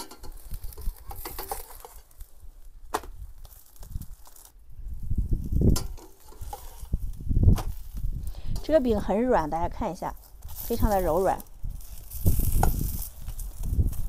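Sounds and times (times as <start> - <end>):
metal spatula scraping frying pan: 0.0 - 2.1, 5.8 - 7.0.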